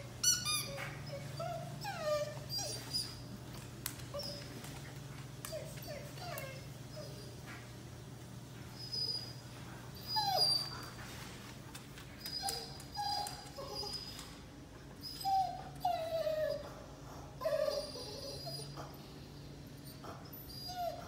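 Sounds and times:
dog whimpering: 0.0 - 3.4, 5.5 - 7.4, 8.8 - 11.0, 12.2 - 14.4, 15.0 - 16.8, 17.4 - 19.0, 19.7 - 21.0
faint low hum: 0.0 - 21.0.

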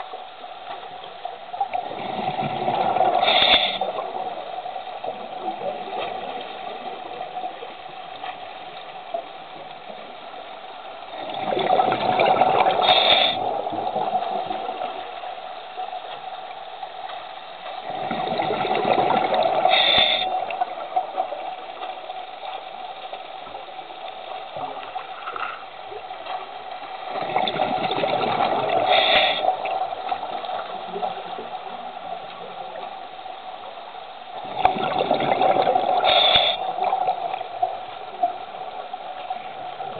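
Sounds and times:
underwater hum: 0.0 - 39.9
exhaled bubbles gushing: 1.7 - 7.7, 11.1 - 15.2, 17.8 - 22.2, 27.1 - 31.9, 34.4 - 38.4.

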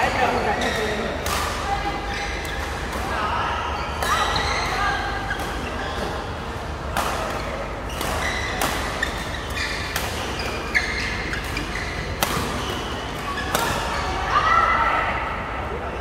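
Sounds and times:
shoes squeaking on court floor: 0.0 - 1.2, 1.9 - 2.9, 3.7 - 6.4, 7.3 - 14.2
rackets hitting shuttlecock: 12.2 - 14.0.

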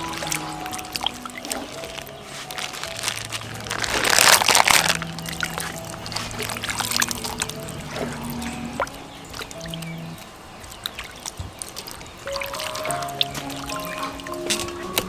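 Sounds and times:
background music: 0.0 - 10.8, 12.2 - 15.0.

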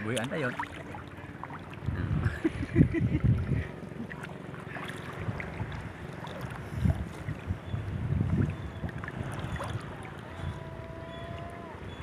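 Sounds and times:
seawater sloshing: 0.0 - 12.0
wind rumbling on microphone: 1.7 - 4.0, 4.9 - 12.0.

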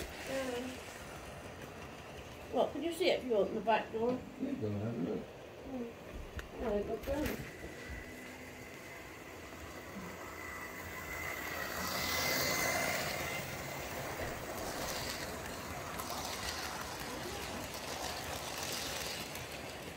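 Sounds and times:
model wagons clicking over rail joints: 0.0 - 4.1, 10.1 - 19.9
model train motor whining: 0.0 - 19.9.

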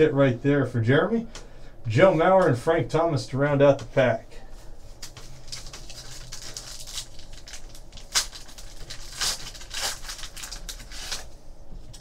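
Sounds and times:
foil wrapper crinkling and tearing: 5.0 - 12.0.

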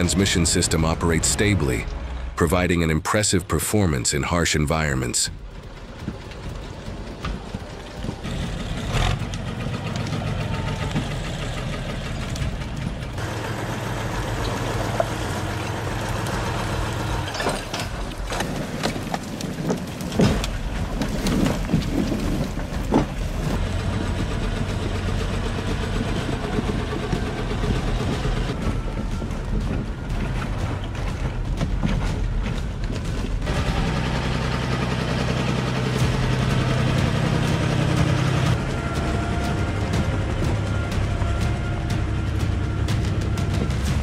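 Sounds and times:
tractor diesel engine under load: 0.0 - 44.0.

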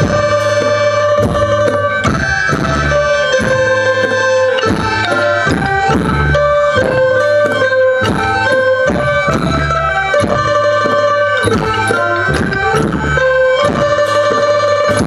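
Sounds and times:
drum strokes: 0.0 - 15.0
held melodic tones: 0.0 - 15.0.

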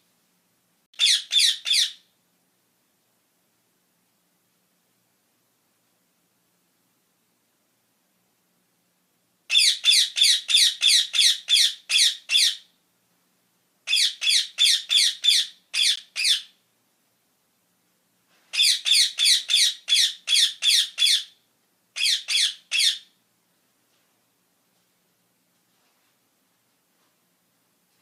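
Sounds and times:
parakeet screeching: 1.0 - 2.1, 9.5 - 12.7, 13.9 - 16.6, 18.5 - 21.4, 22.0 - 23.1.

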